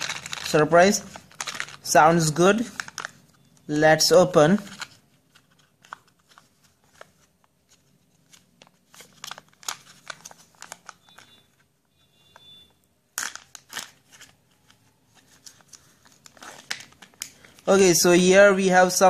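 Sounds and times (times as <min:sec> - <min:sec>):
plastic packaging crinkling: 0:00.0 - 0:02.0, 0:02.6 - 0:03.4, 0:04.6 - 0:11.6, 0:13.2 - 0:17.8.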